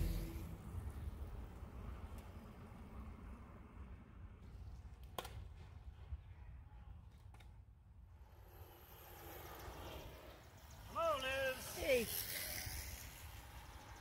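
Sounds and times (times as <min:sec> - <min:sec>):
faint low rumble: 0:00.0 - 0:04.2.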